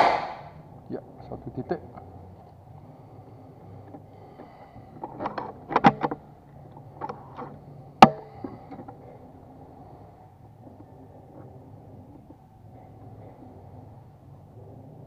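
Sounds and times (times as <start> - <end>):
air rifle shot: 0.0 - 0.6.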